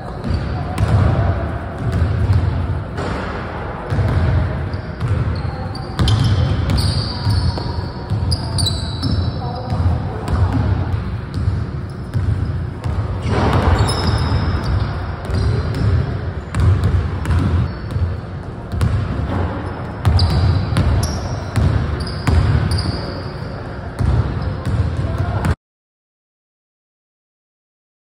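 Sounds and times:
sneakers squeaking on floor: 0.0s - 1.0s, 3.9s - 25.5s
basketball bouncing on hardwood floor: 12.1s - 18.1s, 18.7s - 19.4s.

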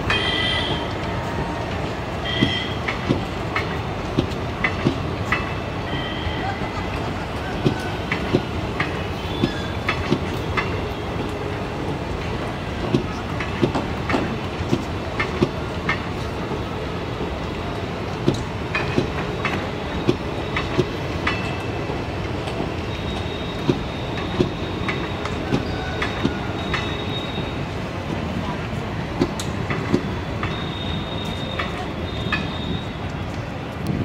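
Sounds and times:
train wheels clacking over joints: 0.0s - 5.7s, 6.6s - 33.5s
train rumble: 0.0s - 34.0s
high wheel squeal: 22.8s - 27.7s, 30.0s - 33.0s.

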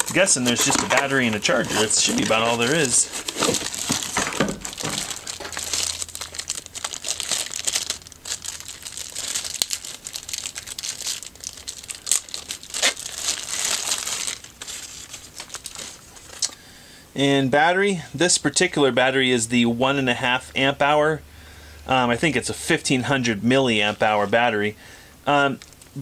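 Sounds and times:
plastic and cardboard crinkling: 0.0s - 16.6s.

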